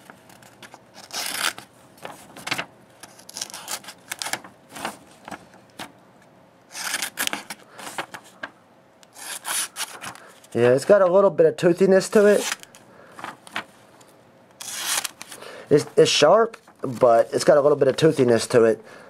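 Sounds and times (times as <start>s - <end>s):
paper rustling: 0.0s - 5.9s, 6.8s - 8.5s, 9.2s - 11.0s, 12.1s - 13.8s, 14.6s - 18.3s
knife cutting paper: 0.3s - 1.6s, 3.0s - 4.9s, 6.7s - 7.6s, 9.1s - 10.1s, 14.6s - 15.4s.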